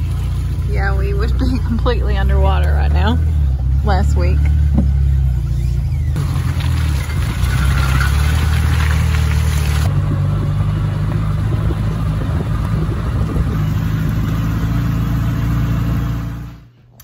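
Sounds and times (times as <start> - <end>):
vehicle engine running: 0.0 - 16.8
rattle and road noise: 0.0 - 17.0.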